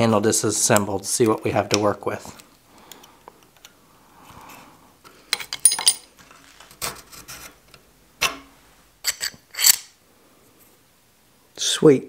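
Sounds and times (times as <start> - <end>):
metallic clicks and scraping clinks: 5.3 - 6.1, 9.0 - 10.0.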